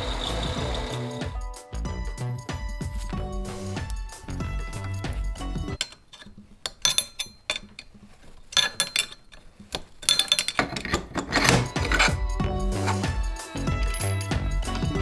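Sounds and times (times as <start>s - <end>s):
background music: 0.0s - 15.0s
wrench clinking on steel bolts: 4.7s - 13.1s, 13.7s - 14.4s.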